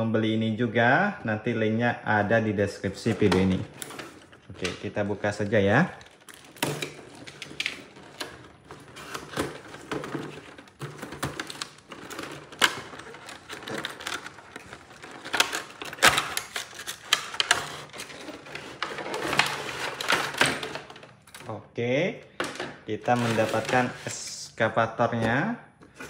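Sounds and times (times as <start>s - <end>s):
crinkling plastic packaging: 3.0s - 21.5s, 22.4s - 24.1s
box cutter cutting cardboard: 8.8s - 20.4s.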